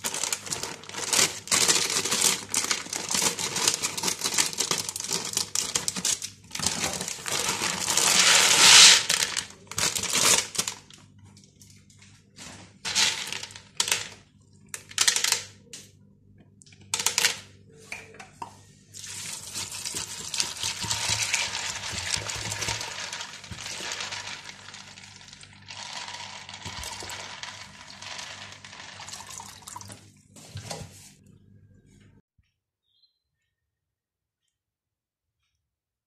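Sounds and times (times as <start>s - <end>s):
dry chickpeas rattling in plastic bowl: 0.0s - 10.9s, 12.8s - 14.2s, 19.0s - 29.7s
water pouring into bowl: 26.6s - 30.0s.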